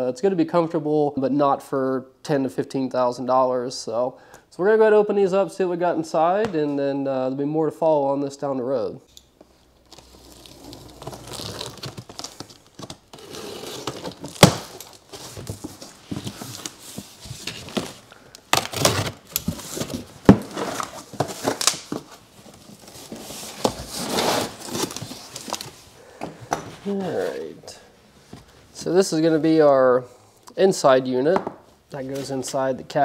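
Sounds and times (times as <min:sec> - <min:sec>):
cardboard flaps scraping and rustling: 0:09.9 - 0:25.9.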